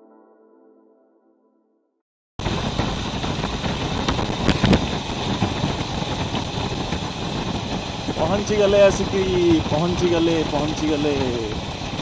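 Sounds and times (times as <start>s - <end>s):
vehicle engine running: 2.4s - 12.0s.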